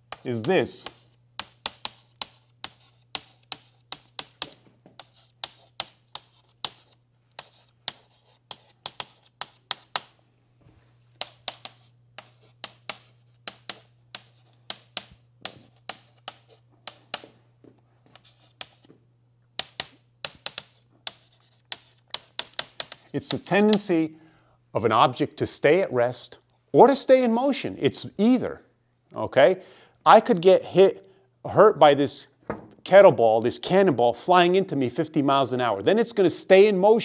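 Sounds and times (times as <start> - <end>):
chalk tapping and scratching: 0.0 - 10.2, 10.8 - 17.4, 18.0 - 19.0, 19.6 - 24.0.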